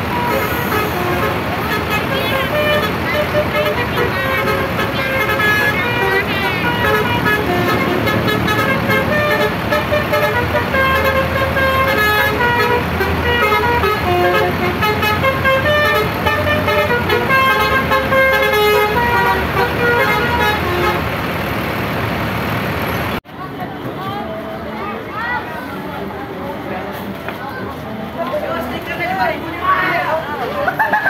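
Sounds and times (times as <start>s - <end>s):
multi-tone air horn melody: 0.0s - 21.1s
bus engine: 0.0s - 31.0s.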